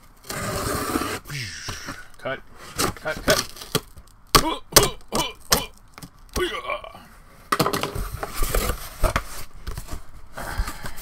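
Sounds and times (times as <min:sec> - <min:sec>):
cardboard and tape scraping: 0:00.0 - 0:02.0, 0:02.6 - 0:03.9, 0:08.0 - 0:10.5.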